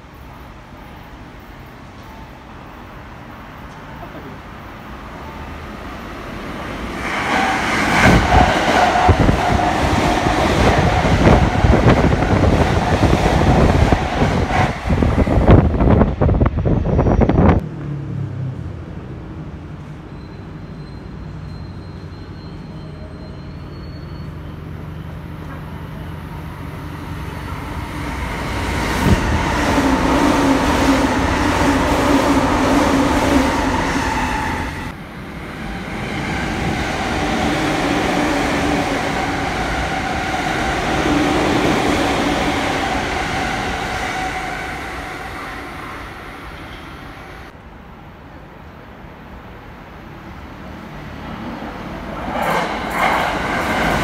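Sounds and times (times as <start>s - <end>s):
train passing with rail noise: 0.0s - 54.0s.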